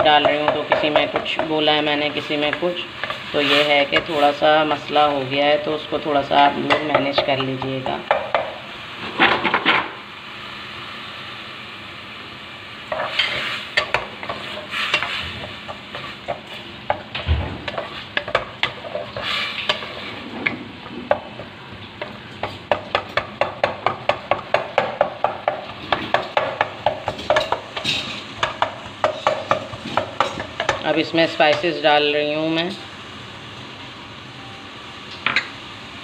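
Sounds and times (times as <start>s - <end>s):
oil sizzling: 0.0s - 36.0s
wooden spatula scraping a pot: 12.9s - 17.0s, 17.6s - 22.8s.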